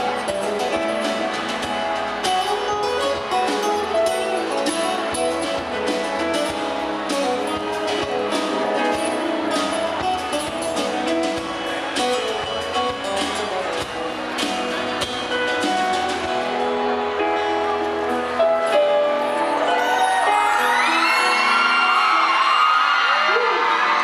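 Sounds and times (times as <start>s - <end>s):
live band with acoustic guitar: 0.0s - 24.0s.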